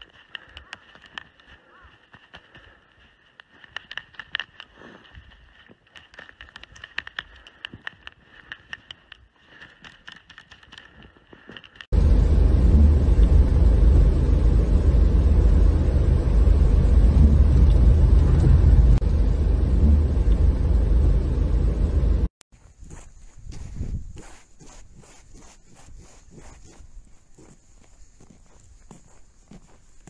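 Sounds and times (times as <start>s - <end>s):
car interior low rumble: 11.9s - 22.3s.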